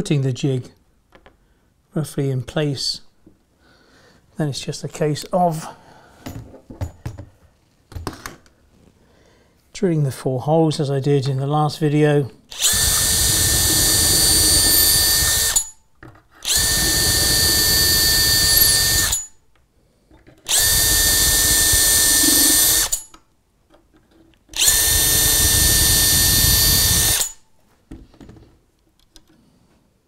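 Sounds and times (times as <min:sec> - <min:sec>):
cordless drill running: 0:12.5 - 0:15.8, 0:16.4 - 0:19.4, 0:20.5 - 0:23.1, 0:24.6 - 0:27.4.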